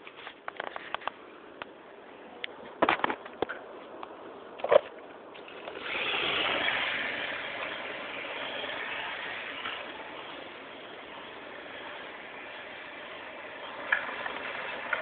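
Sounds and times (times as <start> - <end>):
remote control car whirring past: 5.4 - 15.0.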